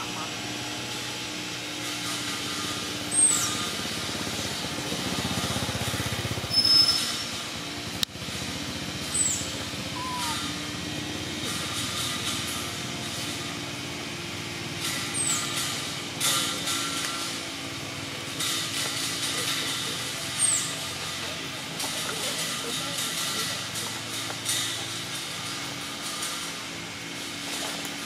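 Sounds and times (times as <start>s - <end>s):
high falling chirps: 9.2s - 10.6s.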